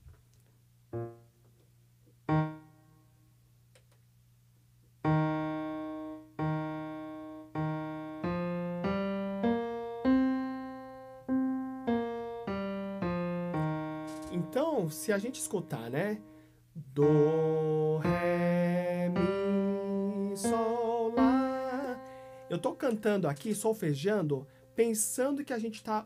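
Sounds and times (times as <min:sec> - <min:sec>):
electronic keyboard piano notes: 0:00.9 - 0:01.4, 0:02.2 - 0:03.0, 0:05.0 - 0:16.3, 0:17.0 - 0:25.1.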